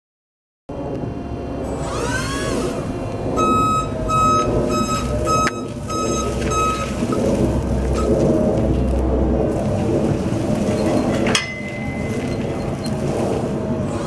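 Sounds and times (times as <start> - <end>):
rising and falling whine: 0.7 - 14.0
rushing background noise: 0.7 - 14.0
reverse alarm beeping: 3.3 - 8.2, 10.7 - 13.0.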